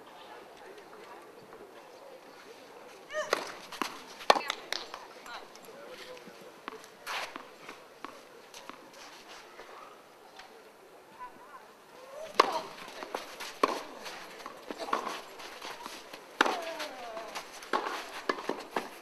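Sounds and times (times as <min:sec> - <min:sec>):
players' voices: 0:00.0 - 0:19.0
rackets striking tennis ball: 0:03.2 - 0:05.6, 0:12.2 - 0:19.0.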